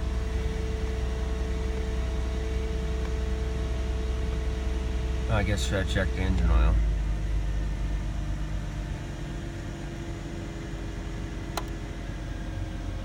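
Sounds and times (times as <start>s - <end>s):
car engine idling: 0.0s - 13.0s
sharp click: 11.6s - 11.8s.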